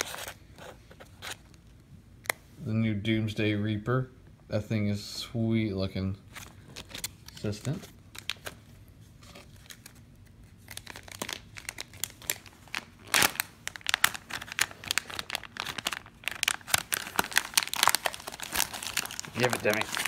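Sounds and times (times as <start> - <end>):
plastic bag crinkling: 9.3 - 20.0.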